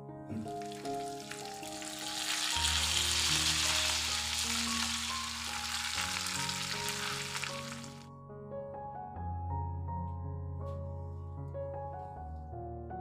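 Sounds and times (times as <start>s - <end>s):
chicken sizzling in hot oil: 0.4s - 8.0s.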